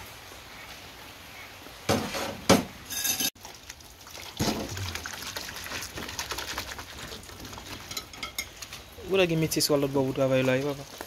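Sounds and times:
plates clinking: 2.9s - 3.3s, 7.8s - 8.6s.

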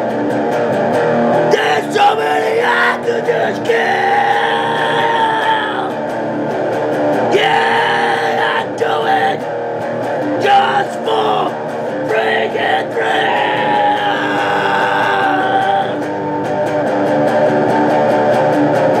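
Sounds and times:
electric guitar playing: 0.0s - 19.0s
man singing metal song: 1.5s - 6.0s, 7.3s - 9.5s, 10.4s - 16.1s.

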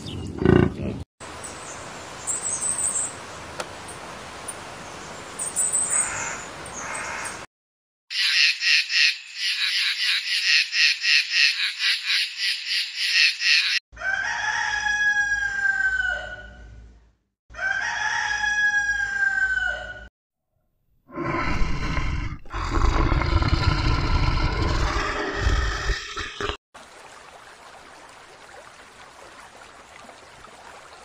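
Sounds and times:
rooster crowing: 14.0s - 16.7s, 17.5s - 20.1s
tiger growling: 21.1s - 26.6s.

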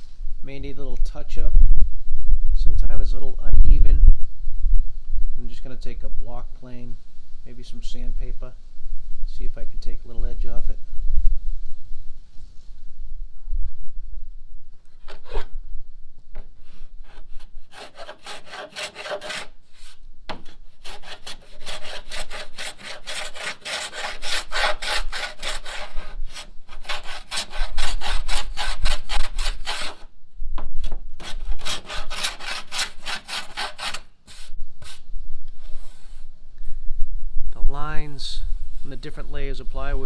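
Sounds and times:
hand plane shaving wood: 17.1s - 19.5s, 20.8s - 30.0s, 31.2s - 34.0s.

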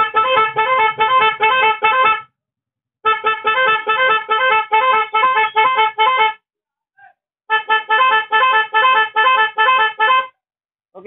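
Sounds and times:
motorcycle horns beeping a tune: 0.0s - 2.3s, 3.1s - 6.4s, 7.5s - 10.3s.

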